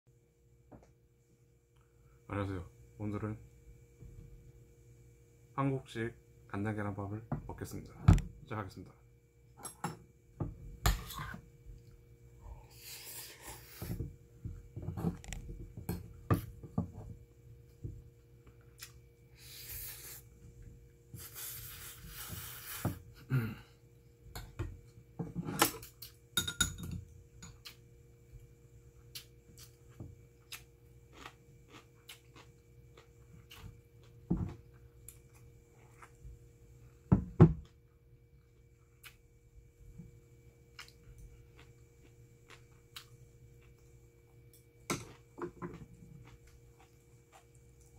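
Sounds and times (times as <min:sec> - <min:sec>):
metal spoon clinking in steel bowl: 0:26.4 - 0:27.0
chewing and mouth sounds: 0:30.4 - 0:34.2.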